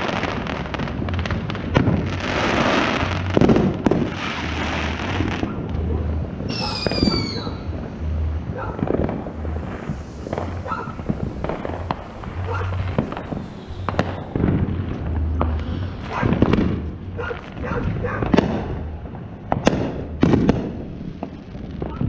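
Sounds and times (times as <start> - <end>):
firework bangs: 0.0 - 22.0
fireworks crackling and hissing: 0.0 - 22.0
whistling firework falling in pitch: 6.5 - 7.9, 8.6 - 18.9.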